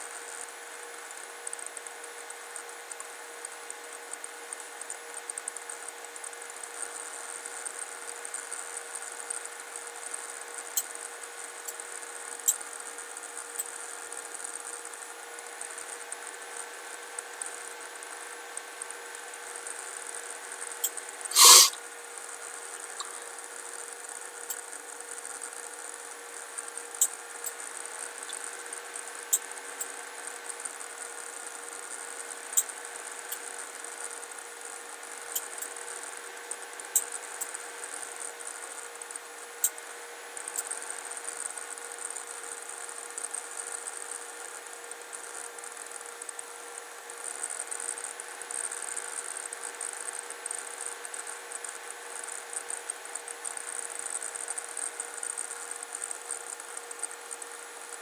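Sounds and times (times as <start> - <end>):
brief loud sound: 21.3 - 21.8
high hiss: 21.3 - 21.8.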